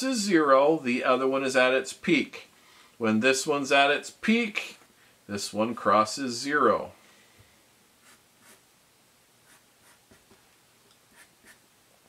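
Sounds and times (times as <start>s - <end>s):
marker scratching on paper: 8.0s - 8.6s, 9.4s - 10.4s, 11.1s - 11.6s.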